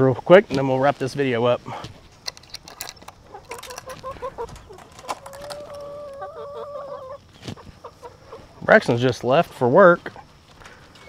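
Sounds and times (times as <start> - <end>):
chickens clucking: 2.7 - 11.0
hen long drawn-out call: 5.3 - 7.2.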